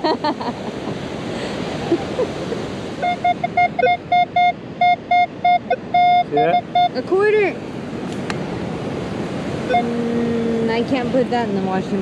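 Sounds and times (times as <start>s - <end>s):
surf: 0.0s - 12.0s
wind: 0.0s - 12.0s
metal detector high beeps: 3.0s - 7.0s, 9.7s - 10.0s.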